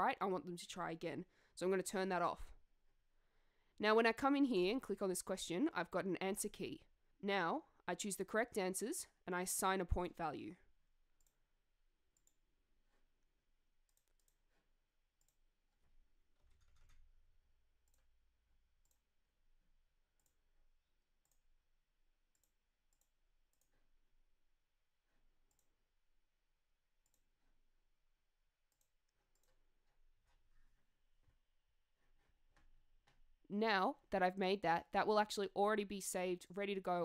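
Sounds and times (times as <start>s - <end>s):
computer mouse clicks: 13.8s - 15.4s, 17.8s - 18.2s, 18.8s - 19.1s, 20.2s - 20.5s, 21.2s - 21.5s, 22.3s - 23.8s, 25.5s - 25.8s, 27.0s - 27.5s, 28.7s - 30.8s.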